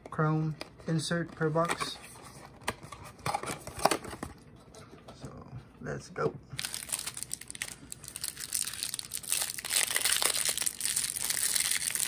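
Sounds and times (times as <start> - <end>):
plastic wrapper crinkling: 6.6 - 12.0.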